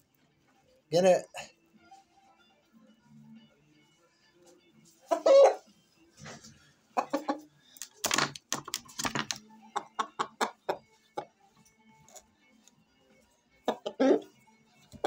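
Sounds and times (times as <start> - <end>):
rooster squawking: 5.1 - 5.7, 13.7 - 14.3.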